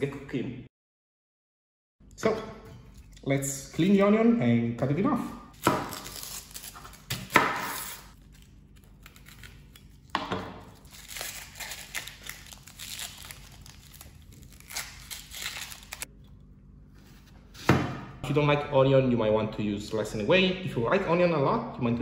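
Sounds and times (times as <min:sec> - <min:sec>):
onion skin crackling: 0:05.6 - 0:16.1.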